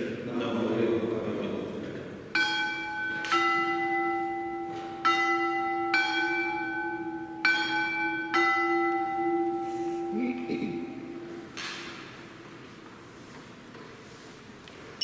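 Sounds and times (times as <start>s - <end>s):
altar bells ringing: 2.4s - 11.5s.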